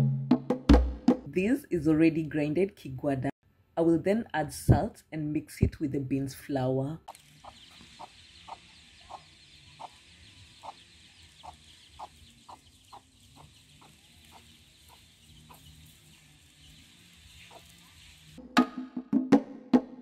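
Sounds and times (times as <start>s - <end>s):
chicken clucking: 7.1s - 18.0s.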